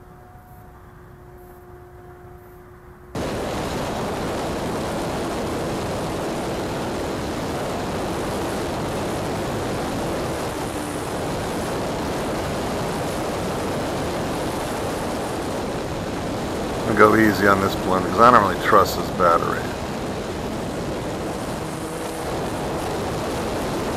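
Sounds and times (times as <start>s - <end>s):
wind rushing over camera: 3.1s - 23.9s.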